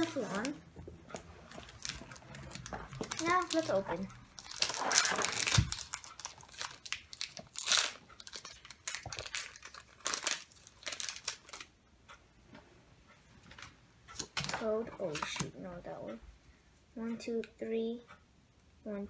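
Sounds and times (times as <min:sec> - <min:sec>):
foil wrapper ripping and crinkling: 0:01.6 - 0:11.7.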